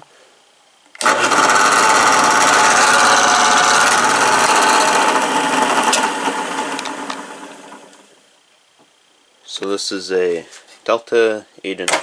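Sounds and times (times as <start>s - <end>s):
drill press motor humming: 1.0s - 8.2s.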